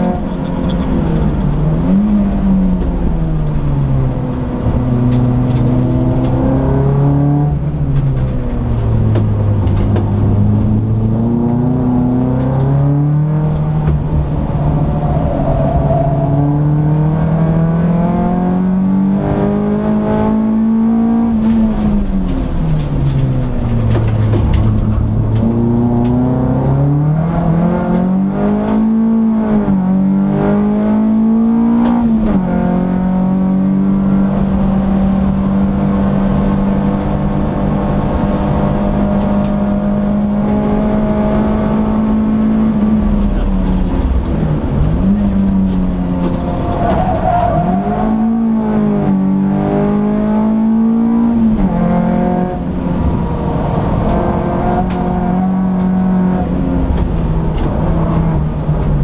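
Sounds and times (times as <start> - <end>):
car engine under load: 0.0 - 59.0.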